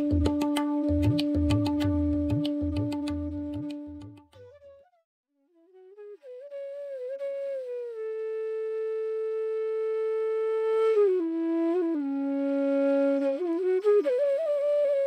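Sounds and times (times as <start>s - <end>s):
flute melody: 0.0s - 15.0s.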